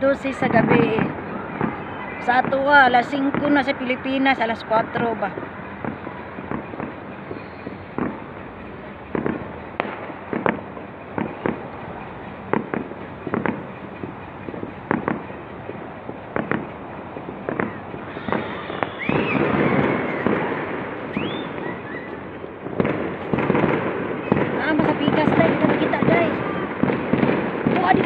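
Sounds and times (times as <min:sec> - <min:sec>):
fireworks and firecrackers banging: 0:00.0 - 0:28.0
firework whistles: 0:05.4 - 0:08.3, 0:17.4 - 0:24.6.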